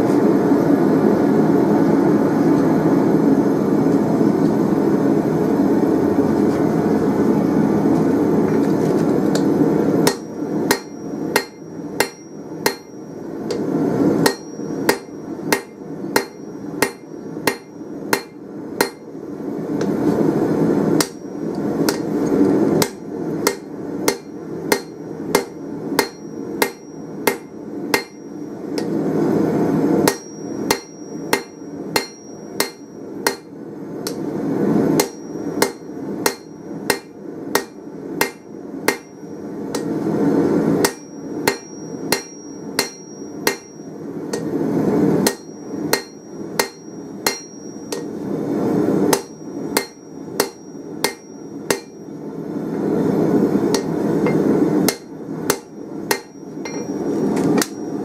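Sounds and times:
steady rushing noise: 0:00.0 - 0:50.5
hammer striking steel on anvil: 0:09.4 - 0:19.1, 0:21.0 - 0:22.2, 0:22.8 - 0:29.0, 0:30.0 - 0:34.3, 0:35.0 - 0:40.0, 0:40.8 - 0:44.6, 0:45.2 - 0:48.2, 0:49.1 - 0:52.2, 0:53.7 - 0:58.0.

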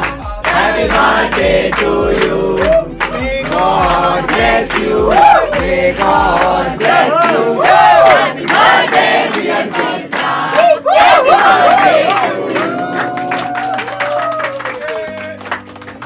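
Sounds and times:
song with singing and drum beat: 0:00.0 - 0:09.2.

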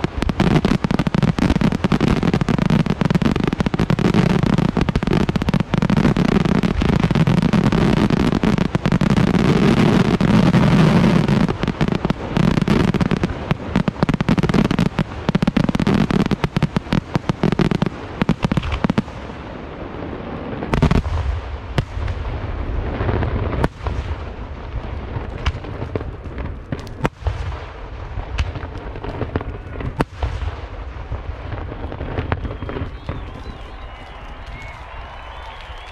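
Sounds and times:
fireworks bursts and crackling: 0:00.0 - 0:35.9
loud fireworks bangs: 0:00.0 - 0:35.9.

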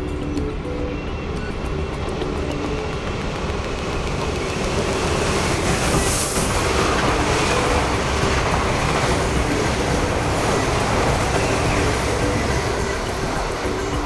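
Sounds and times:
train rushing through station: 0:00.0 - 0:14.0.

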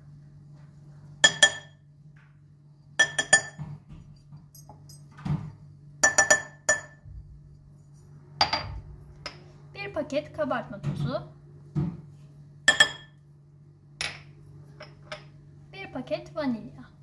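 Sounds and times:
glass clinking against glass bowl: 0:01.2 - 0:01.8, 0:03.0 - 0:03.6, 0:06.0 - 0:07.0, 0:12.7 - 0:13.2.

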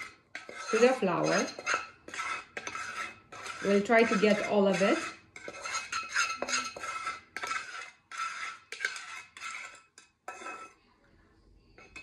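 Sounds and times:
wooden spatula scraping metal saucepan: 0:00.0 - 0:10.9, 0:11.8 - 0:12.0.

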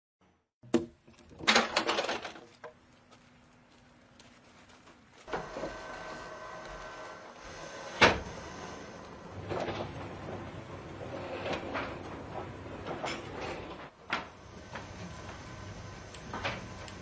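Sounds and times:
wooden knocks of logs: 0:00.6 - 0:02.8
sawmill machinery running: 0:05.3 - 0:17.0.

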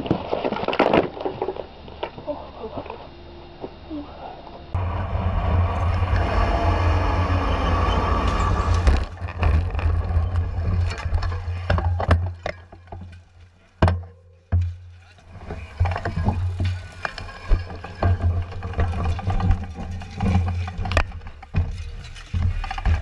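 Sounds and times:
wind rumbling on microphone: 0:04.7 - 0:12.2
bicycles crashing and clattering: 0:04.8 - 0:23.0.

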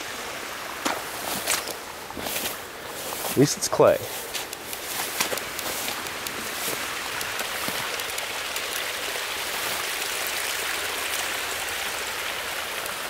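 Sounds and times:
water rushing over a levee: 0:00.0 - 0:13.0.

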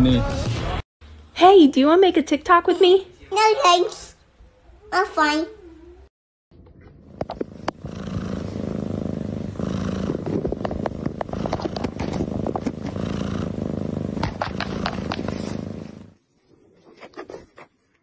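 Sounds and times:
cat purring: 0:07.0 - 0:16.2.

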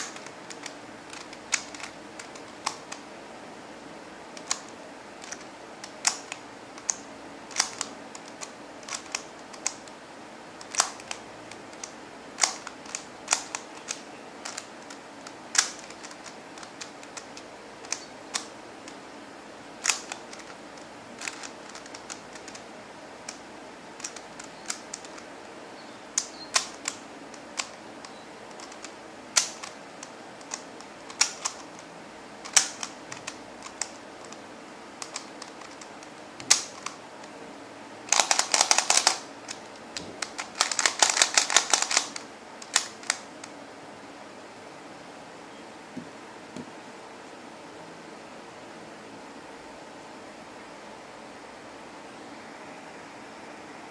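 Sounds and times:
plastic puzzle clicking: 0:00.0 - 0:03.0, 0:04.4 - 0:10.0, 0:10.6 - 0:19.0, 0:19.8 - 0:23.4, 0:24.0 - 0:25.3, 0:26.2 - 0:34.4, 0:35.0 - 0:37.3, 0:38.1 - 0:43.5.

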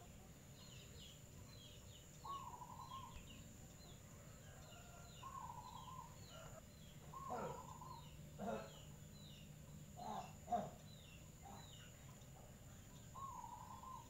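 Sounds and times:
bird chirping: 0:00.0 - 0:14.0
held bird call: 0:04.5 - 0:08.9.

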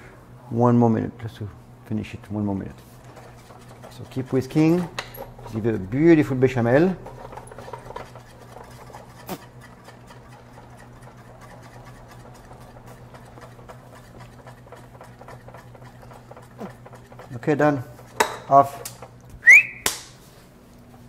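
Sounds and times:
whisk scraping in saucepan: 0:02.8 - 0:19.2.

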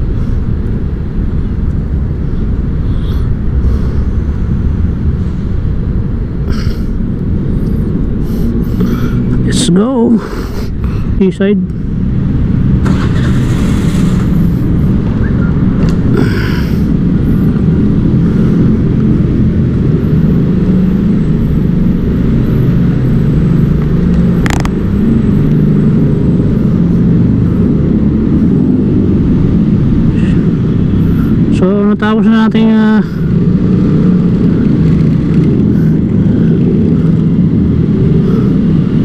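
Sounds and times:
wind rumble on microphone: 0:00.0 - 0:39.0
motorcycle engine running: 0:11.8 - 0:39.0.

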